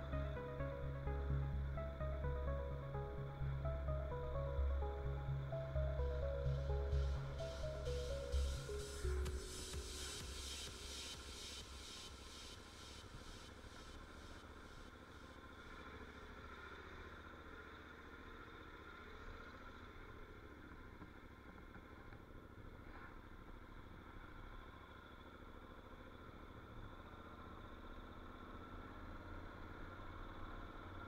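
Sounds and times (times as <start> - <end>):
background music: 0.0 - 14.4
faint motorcycle engine running: 0.0 - 31.0.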